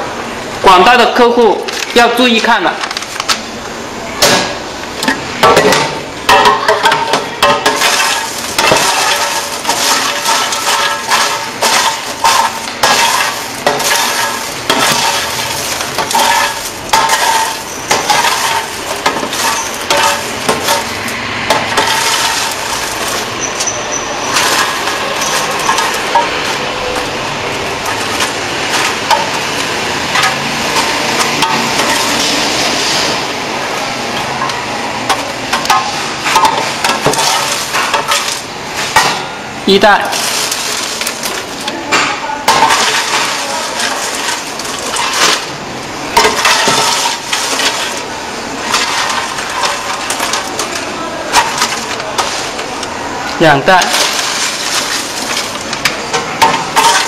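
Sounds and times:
popcorn rustling: 0.6s - 3.6s, 4.5s - 39.0s, 39.6s - 57.0s
plastic scoop scraping metal tray: 7.4s - 33.2s, 53.7s - 55.8s.

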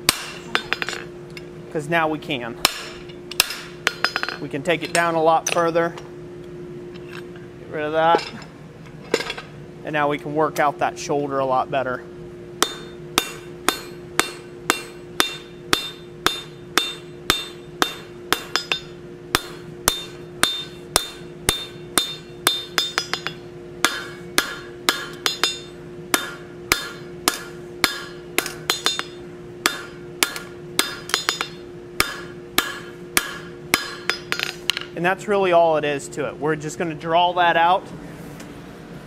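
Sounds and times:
hammer striking steel on anvil: 0.0s - 1.1s, 2.6s - 5.7s, 12.6s - 35.0s
steady hum: 0.0s - 39.0s.

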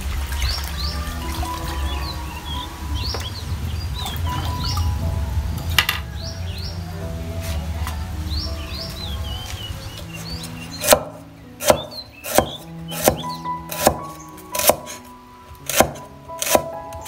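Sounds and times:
background music: 0.0s - 17.0s
cleaver chopping on wooden board: 10.8s - 15.0s, 15.7s - 16.7s.

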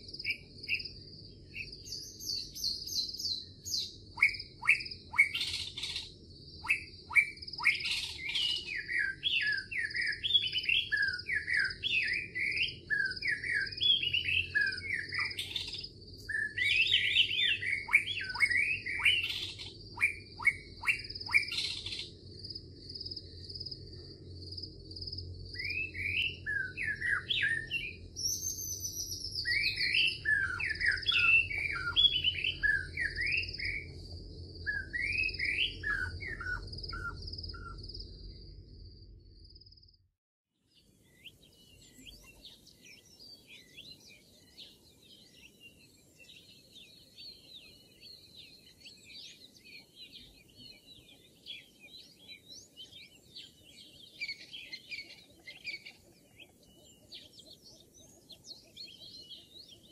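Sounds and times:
birds chirping: 0.0s - 40.0s, 40.7s - 59.9s
low rumble: 32.8s - 40.0s.

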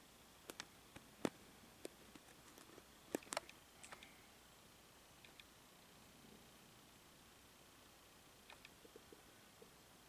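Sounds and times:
faint clicks: 0.4s - 4.2s, 5.2s - 5.5s, 8.4s - 9.7s.

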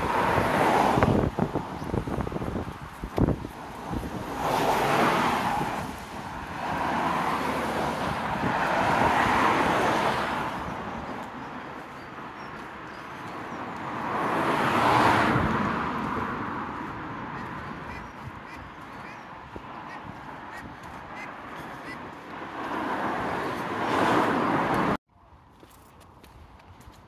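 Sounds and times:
cars passing on road: 0.0s - 27.0s.

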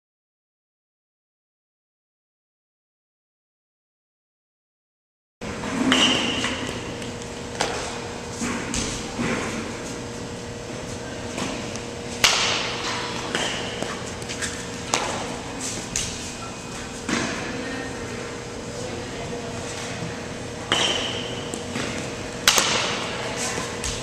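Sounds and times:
steady low hum: 5.4s - 24.0s.

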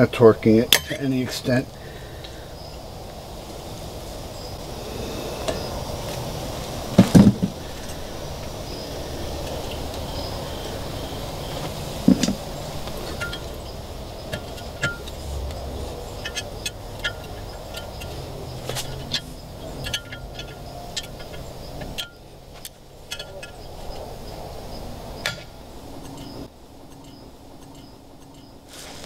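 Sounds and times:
sharp metallic clinks: 7.6s - 22.3s, 23.0s - 24.5s.

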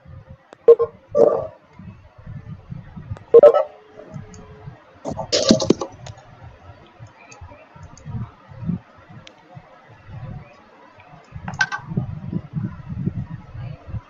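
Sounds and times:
sharp clatter: 5.1s - 6.1s
clicks and knocks: 5.1s - 6.2s, 11.5s - 11.8s.

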